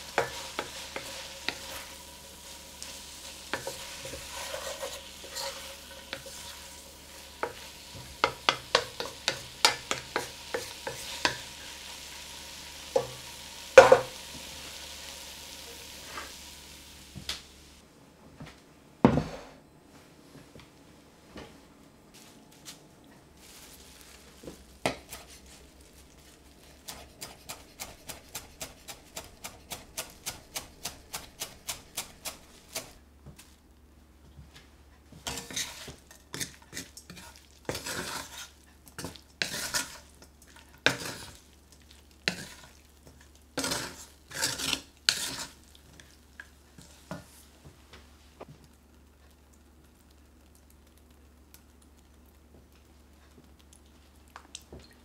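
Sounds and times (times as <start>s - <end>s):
wooden spoon scraping frying pan: 0.0s - 12.1s, 23.4s - 33.0s, 35.2s - 41.5s, 42.2s - 47.6s.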